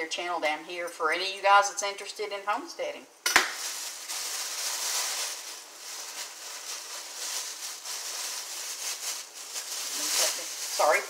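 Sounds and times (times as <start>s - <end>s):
plastic bag rustling and crinkling: 3.4s - 11.0s.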